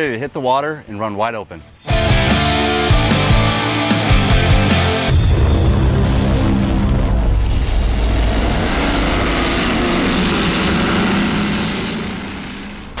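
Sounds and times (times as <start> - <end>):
powerboat engine running: 8.2 - 13.0.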